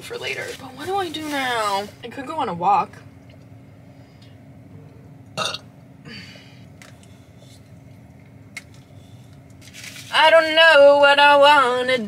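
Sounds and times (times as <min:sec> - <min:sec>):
burp: 0:05.4 - 0:05.7.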